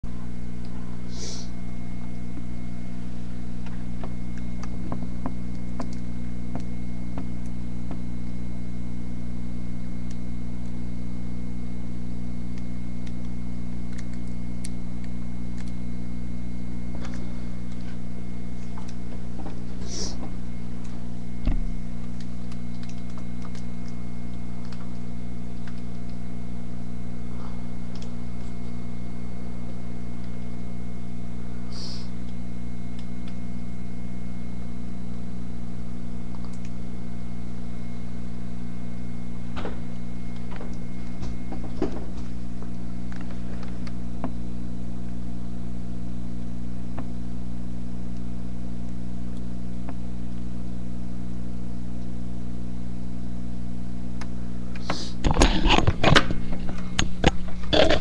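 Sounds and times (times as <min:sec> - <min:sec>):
low mechanical hum: 0:00.0 - 0:58.0.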